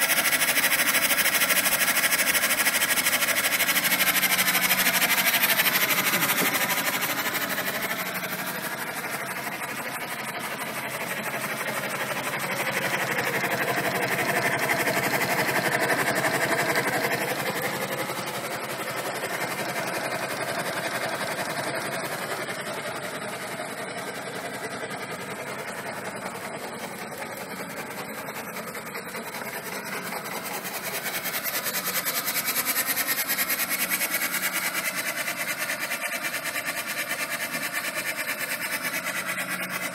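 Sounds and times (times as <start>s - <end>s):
steam engine clattering: 0.0s - 22.4s.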